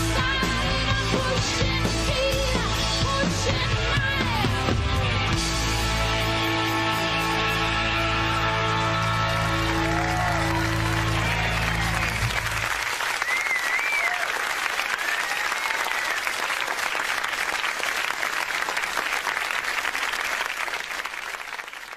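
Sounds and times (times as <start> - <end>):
audience applause: 7.6 - 21.9
audience whistles: 9.6 - 17.6.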